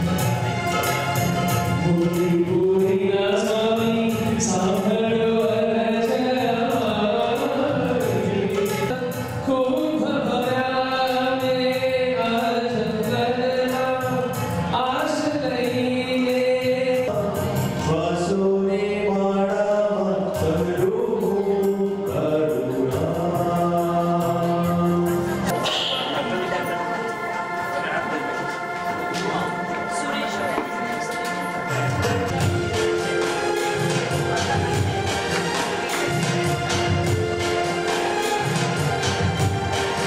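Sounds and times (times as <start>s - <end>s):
musical accompaniment: 0.0s - 40.0s
voices singing devotional song: 1.9s - 32.6s.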